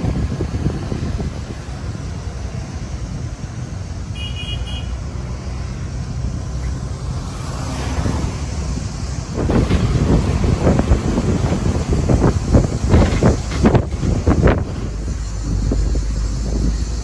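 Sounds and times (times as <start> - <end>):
wind buffeting microphone: 0.0 - 4.1, 7.9 - 17.0
vehicle engine and road noise: 0.0 - 17.0.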